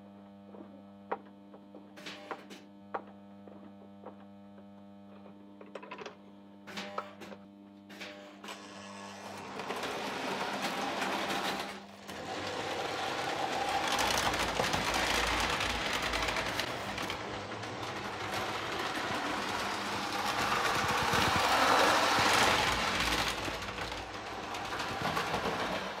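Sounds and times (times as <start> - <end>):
toy train motors whirring: 7.9 - 26.0
wheels rattling over track: 9.1 - 26.0.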